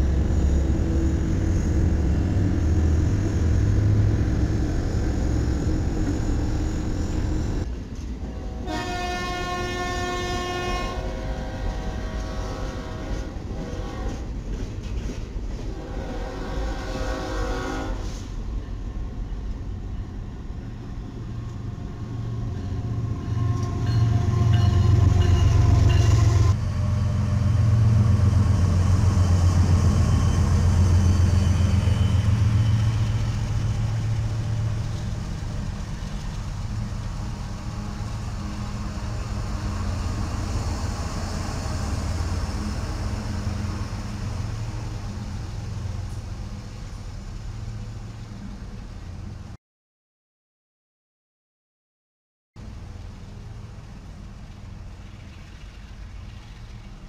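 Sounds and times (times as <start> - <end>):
freight cars rumbling: 0.0 - 8.5, 18.1 - 49.6
diesel locomotives rumbling: 0.0 - 49.6, 52.6 - 57.0
train horn blowing: 8.3 - 14.3, 15.7 - 18.2, 23.2 - 26.6.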